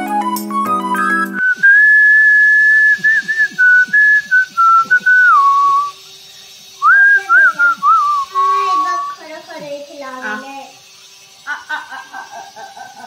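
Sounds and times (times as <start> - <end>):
whistled melody: 0.0 - 6.1, 6.7 - 9.3.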